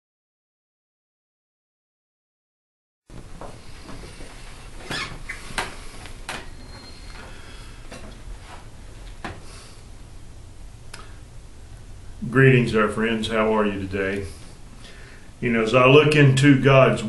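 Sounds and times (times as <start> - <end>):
low steady hum: 3.1 - 17.0
brief squeak: 6.5 - 7.2.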